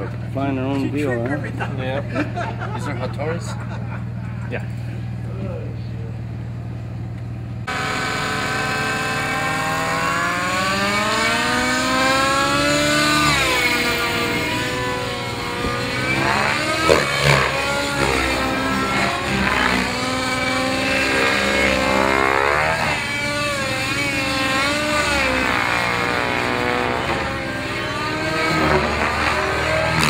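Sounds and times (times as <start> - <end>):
model helicopter engine and rotor: 7.6 - 30.0.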